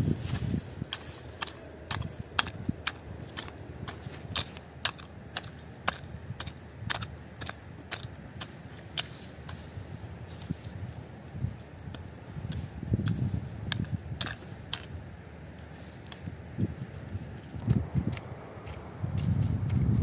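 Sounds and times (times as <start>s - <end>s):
hand hoe chopping into soil: 0.0s - 10.8s, 11.8s - 15.0s.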